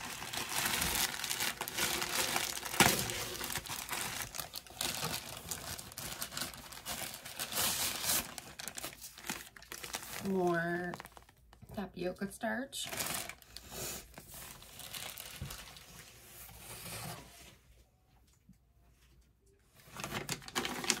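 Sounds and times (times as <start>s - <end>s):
packaging crinkling and tearing: 0.0s - 11.6s, 12.8s - 16.1s, 19.8s - 21.0s.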